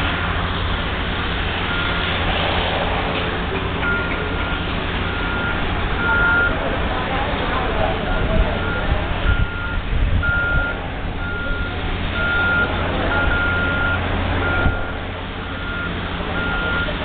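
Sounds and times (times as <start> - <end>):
steady low rumble: 0.0 - 17.0
backup alarm beeping: 3.8 - 6.6, 8.1 - 17.0.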